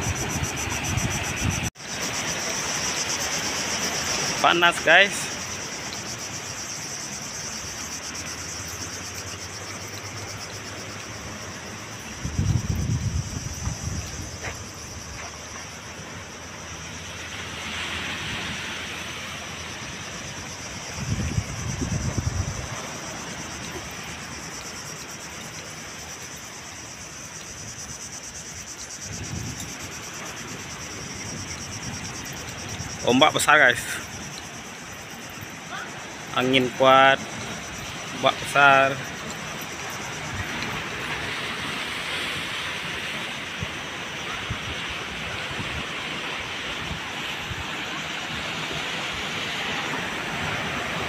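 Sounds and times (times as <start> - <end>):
wind buffeting microphone: 0.0 - 1.7, 12.0 - 15.2, 20.0 - 25.2, 28.6 - 33.1
insects droning: 0.0 - 51.0
wind hiss: 0.0 - 51.0.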